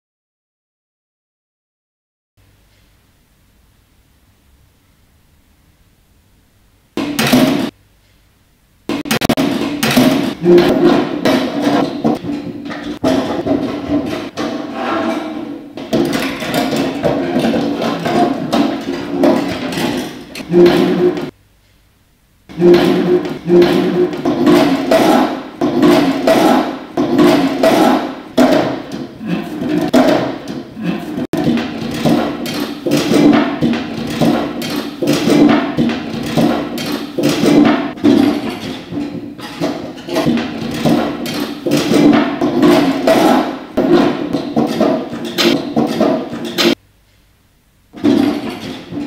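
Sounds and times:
metal chairs clattering: 0:07.0 - 0:07.7, 0:08.9 - 0:21.3, 0:22.5 - 0:46.8, 0:48.0 - 0:49.0.

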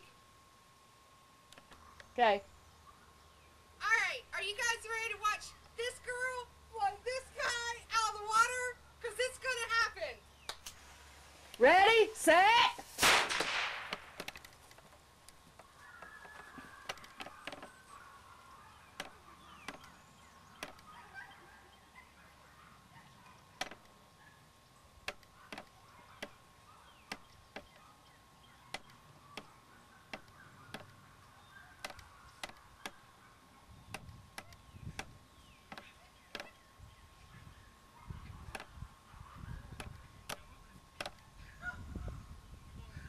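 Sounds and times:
low hiss: 0:00.0 - 0:21.1
sharp clicks: 0:13.0 - 0:15.7.

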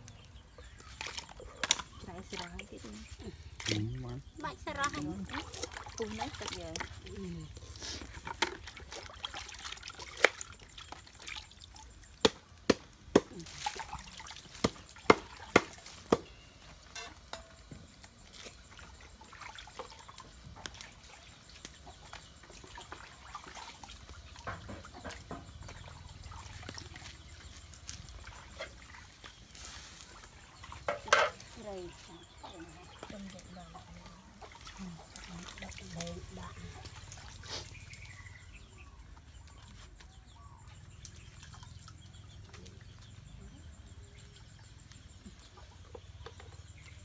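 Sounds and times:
water sloshing in bucket: 0:00.1 - 0:47.0.

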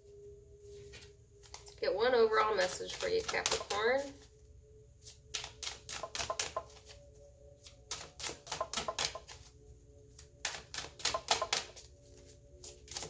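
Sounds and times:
cards being shuffled: 0:10.2 - 0:13.0.

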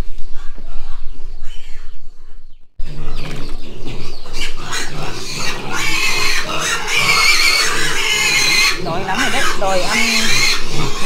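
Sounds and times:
pigs squealing: 0:02.8 - 0:11.0.

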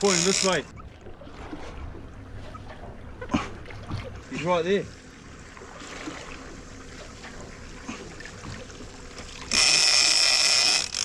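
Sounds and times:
fishing reel clicker buzzing: 0:00.0 - 0:00.7, 0:09.5 - 0:11.0.

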